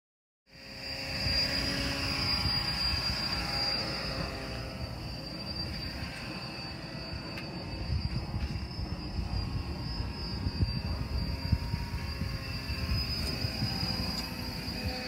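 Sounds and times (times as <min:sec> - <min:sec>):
high-pitched whine: 0:00.5 - 0:15.0
wind rumble on microphone: 0:06.9 - 0:15.0.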